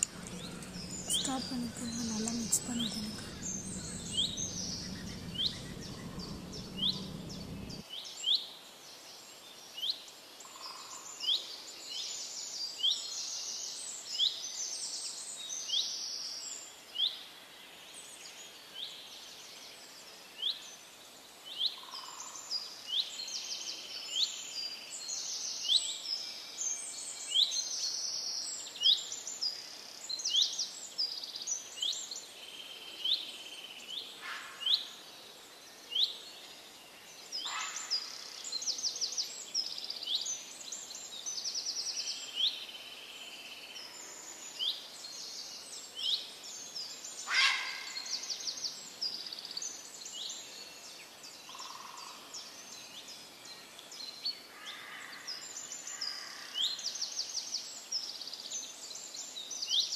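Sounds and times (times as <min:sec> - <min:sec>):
bird chirping: 0:00.0 - 0:07.8
birds twittering: 0:00.0 - 0:07.8
low rumble: 0:00.0 - 0:07.8.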